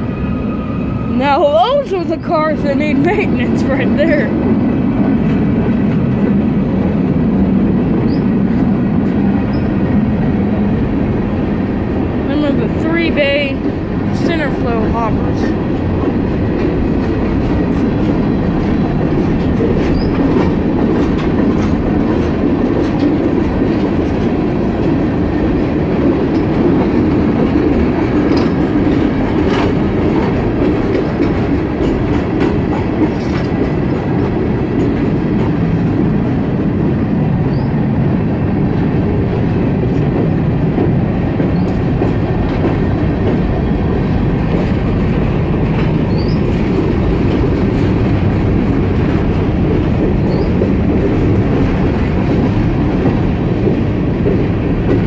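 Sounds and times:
rumble of train wheels on rail: 0:00.0 - 0:55.0
high wheel squeals: 0:46.1 - 0:46.5.

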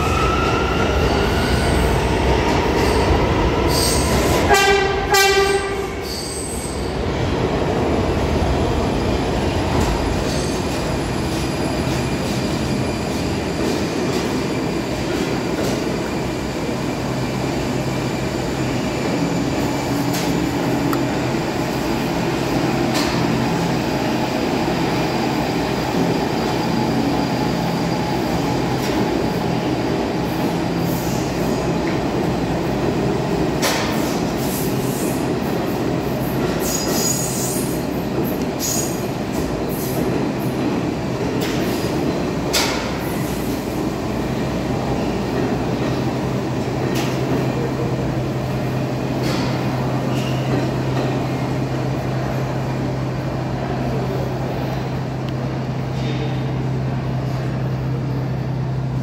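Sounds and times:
subway train whine: 0:00.0 - 0:59.0
train horn blasts: 0:04.5 - 0:06.0.

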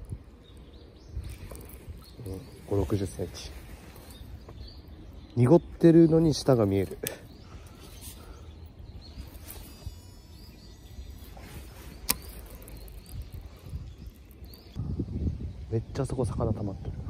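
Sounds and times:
faint high chirps: 0:06.4 - 0:15.4.

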